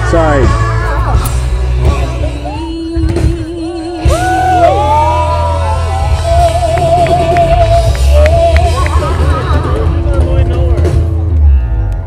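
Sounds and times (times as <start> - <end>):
live band playing: 0.0 - 12.0
person singing long notes: 1.8 - 9.1.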